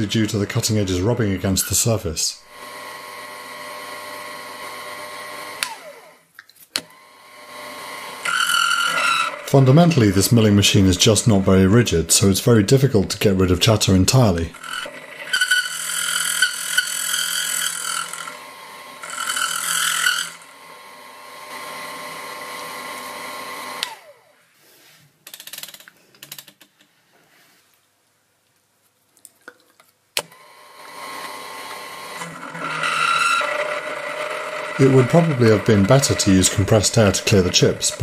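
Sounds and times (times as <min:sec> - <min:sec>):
milling machine cutting: 0:02.5 - 0:06.0, 0:06.9 - 0:10.3, 0:14.5 - 0:24.0, 0:30.3 - 0:38.0
high squealing cutter chatter: 0:32.6 - 0:38.0.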